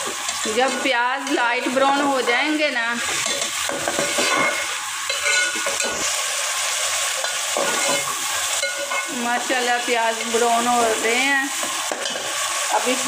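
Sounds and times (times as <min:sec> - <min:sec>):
onions sizzling in hot oil: 0:00.0 - 0:13.0
metal ladle scraping a pan: 0:02.9 - 0:12.8.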